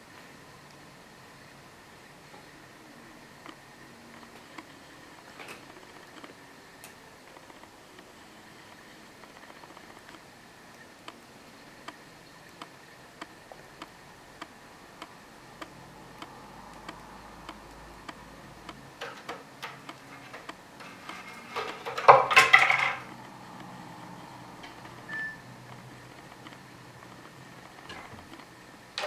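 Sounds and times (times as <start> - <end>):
faint ticks: 11.8 - 18.8.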